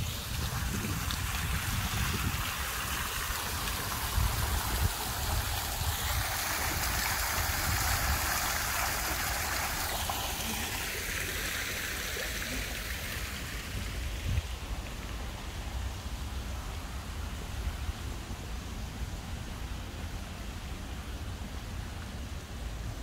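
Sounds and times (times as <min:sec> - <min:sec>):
fountain water splashing into basin: 0:00.0 - 0:17.9.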